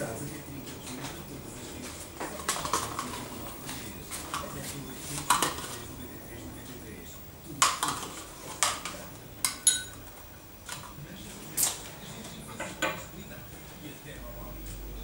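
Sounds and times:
metal spoon clinking against bowl: 0:09.4 - 0:10.1.

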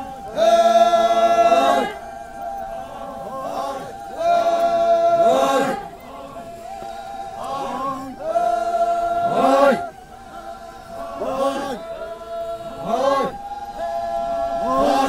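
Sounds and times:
group of voices chanting: 0:00.0 - 0:15.0.

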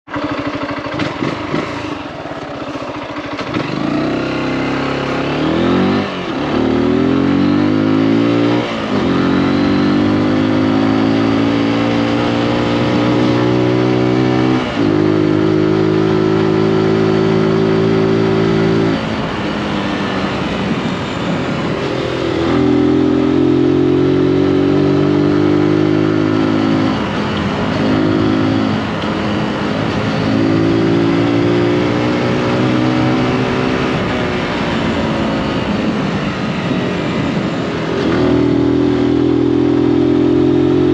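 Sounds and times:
motorcycle engine accelerating: 0:00.0 - 0:40.9.

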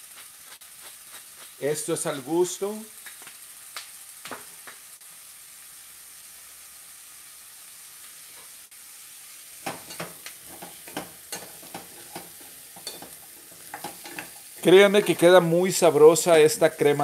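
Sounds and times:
vegetables sizzling in a pan: 0:00.0 - 0:17.0
wooden spoon scraping a pan: 0:09.6 - 0:15.5.

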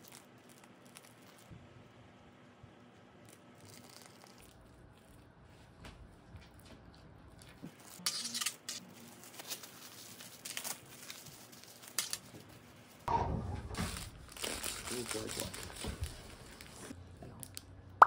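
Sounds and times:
cling film crinkling: 0:07.5 - 0:13.1, 0:13.8 - 0:17.0.

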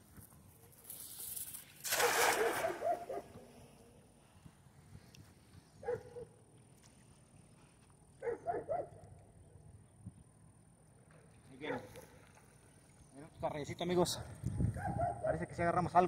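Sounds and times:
cast net splashing on water: 0:00.9 - 0:03.3
dog barking: 0:02.0 - 0:03.3, 0:05.8 - 0:06.3, 0:08.2 - 0:08.9, 0:14.8 - 0:15.4.

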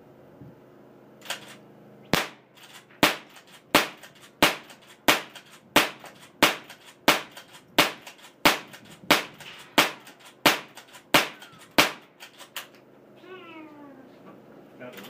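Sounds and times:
rifle lever clicks: 0:01.2 - 0:01.6
rifle shots cracking: 0:01.2 - 0:12.7.

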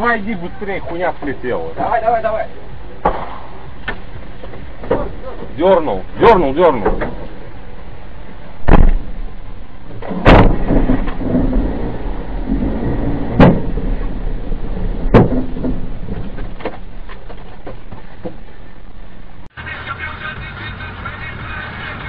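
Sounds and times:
low fire rumble: 0:00.0 - 0:19.6
explosion bangs: 0:03.0 - 0:03.9, 0:08.7 - 0:09.3, 0:10.2 - 0:16.6.

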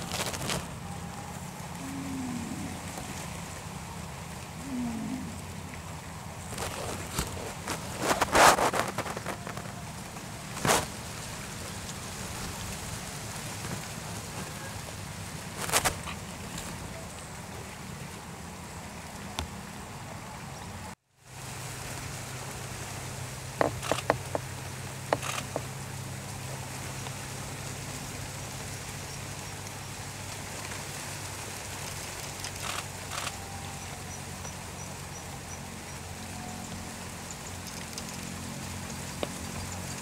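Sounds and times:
low hum: 0:00.0 - 0:11.4
steady hiss: 0:00.0 - 0:40.0.

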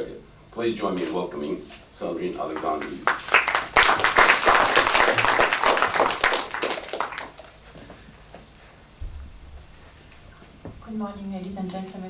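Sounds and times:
audience applauding: 0:02.5 - 0:07.7.

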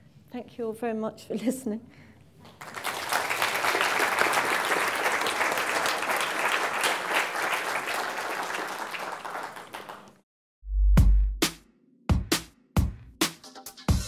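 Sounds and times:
audience applauding: 0:02.4 - 0:10.2.

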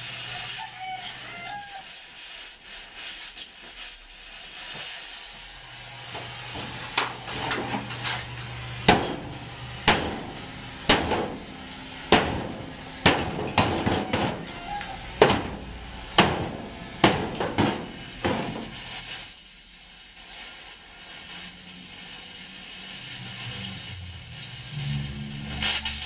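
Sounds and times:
hammer striking steel plate: 0:08.9 - 0:11.4, 0:12.1 - 0:18.7.

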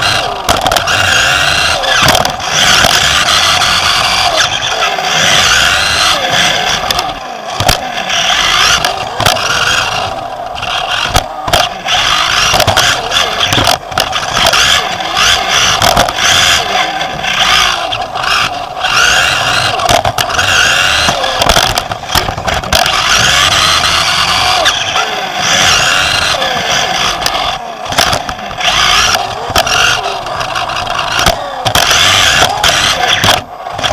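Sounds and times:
chassis clattering and knocking: 0:00.0 - 0:04.2, 0:06.8 - 0:07.8, 0:08.4 - 0:16.6, 0:17.4 - 0:24.8
electric motor and gears whining: 0:00.0 - 0:33.9.

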